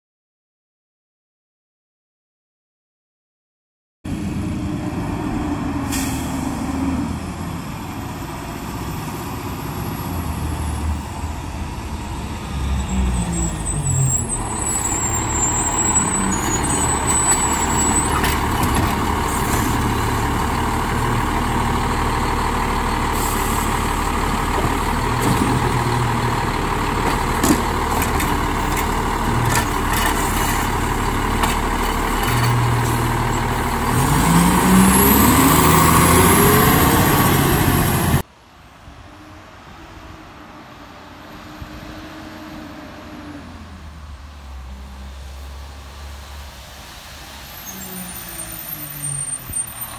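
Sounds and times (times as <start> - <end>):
garbage truck engine: 4.1 - 38.4
air brake hiss: 5.8 - 6.6.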